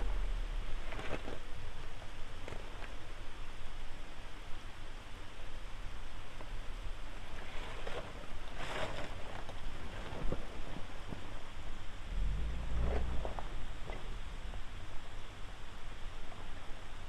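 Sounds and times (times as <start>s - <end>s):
tyres crunching over gravel: 0.0s - 3.2s, 7.2s - 11.6s, 12.6s - 14.7s
low engine rumble: 0.0s - 17.0s.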